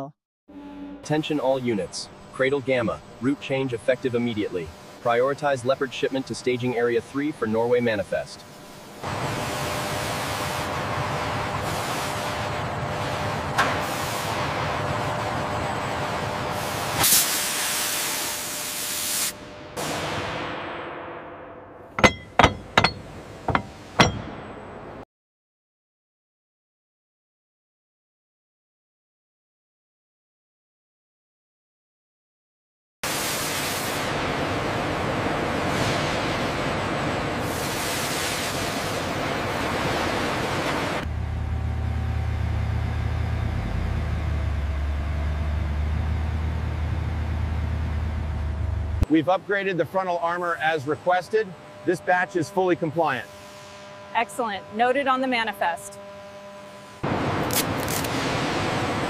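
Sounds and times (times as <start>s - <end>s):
metal hub clinking on steel flange: 22.0s - 24.4s
tank engines rumbling: 22.0s - 25.0s, 39.2s - 53.2s.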